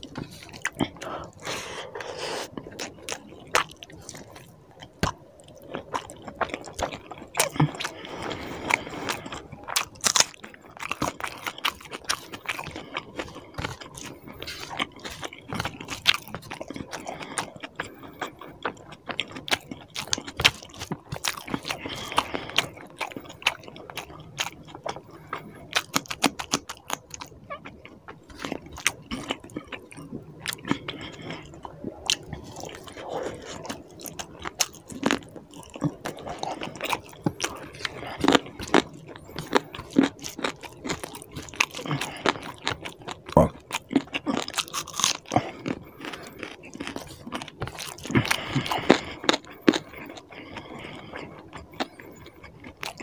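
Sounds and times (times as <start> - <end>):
wet chewing and lip smacking: 0.0 - 53.0.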